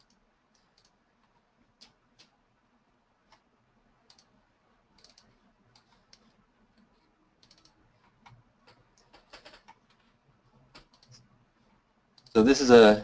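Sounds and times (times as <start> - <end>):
computer mouse clicking: 0.0 - 2.4, 3.3 - 10.1, 10.7 - 11.3, 12.2 - 12.4.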